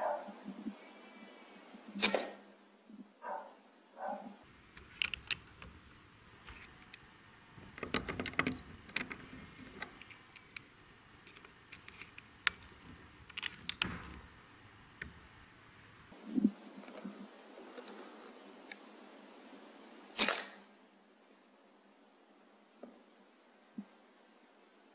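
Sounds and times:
air rifle action clicking: 4.7 - 15.2.

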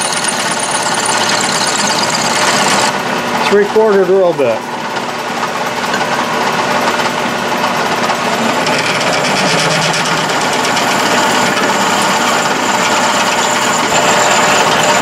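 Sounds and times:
drill cutting into metal: 0.0 - 2.9, 8.2 - 15.0
metal lathe running: 0.0 - 15.0.

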